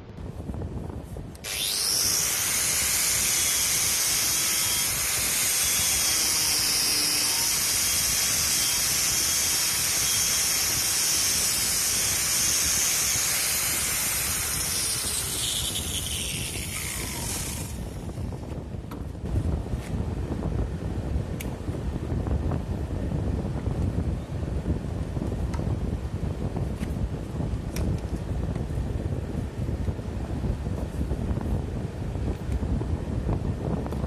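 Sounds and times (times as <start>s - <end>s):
wire brush grinder rasping wood: 1.4s - 18.4s.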